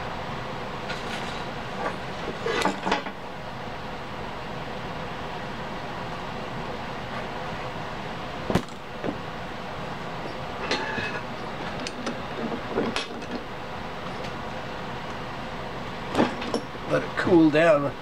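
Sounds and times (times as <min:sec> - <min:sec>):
steady background hiss: 0:00.0 - 0:18.0
vise clicks and knocks: 0:00.9 - 0:03.2.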